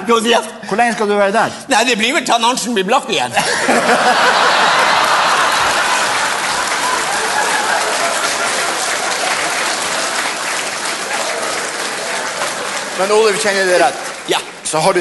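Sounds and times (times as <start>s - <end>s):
audience applauding: 3.6s - 15.0s.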